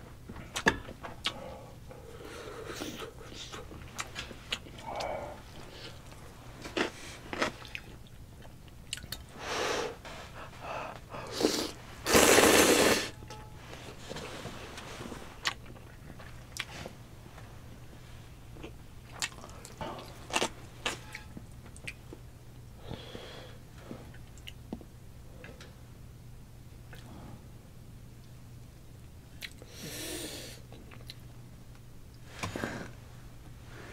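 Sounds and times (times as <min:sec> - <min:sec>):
noodle slurps: 0:11.4 - 0:13.1.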